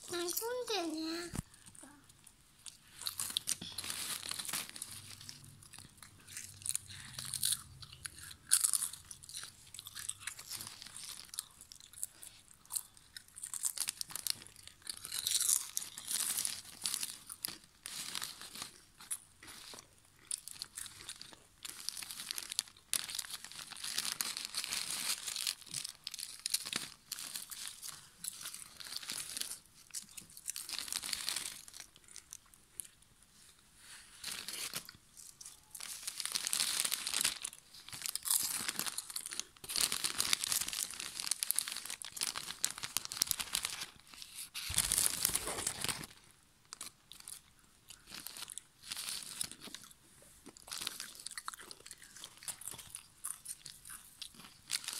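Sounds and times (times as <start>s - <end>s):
foil bag crinkling: 0.0s - 1.9s, 2.8s - 7.8s, 20.4s - 32.3s, 35.6s - 49.8s, 54.6s - 54.9s
potato chips crunching: 2.6s - 33.0s, 34.2s - 54.9s.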